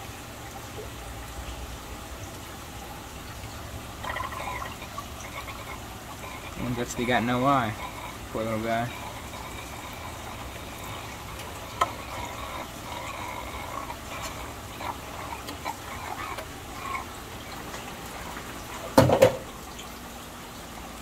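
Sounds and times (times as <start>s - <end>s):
steady low hum: 0.0s - 18.9s
water trickling and splashing: 0.0s - 21.0s.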